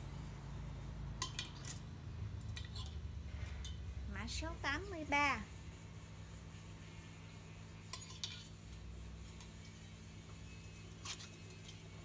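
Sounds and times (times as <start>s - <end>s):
metal hangers clinking: 7.9s - 8.8s.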